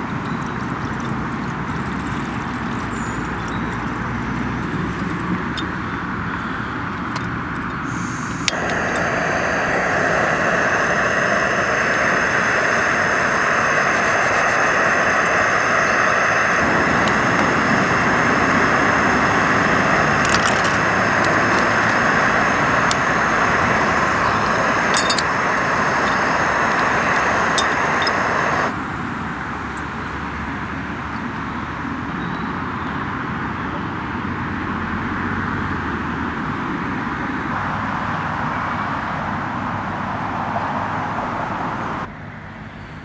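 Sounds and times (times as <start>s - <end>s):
gas stove flame hissing: 1.7s - 6.2s, 6.8s - 31.0s
deep rumble: 16.6s - 28.7s
lid and spoon clicks: 20.2s - 22.0s, 24.8s - 28.4s.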